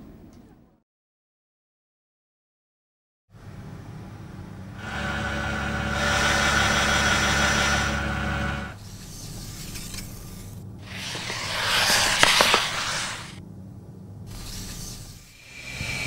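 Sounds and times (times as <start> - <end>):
machine humming and whining: 3.4 - 16.0.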